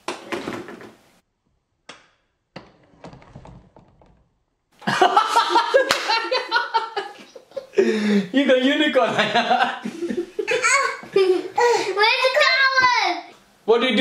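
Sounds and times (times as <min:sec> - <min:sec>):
children laughing: 0:04.8 - 0:08.4, 0:09.0 - 0:12.6.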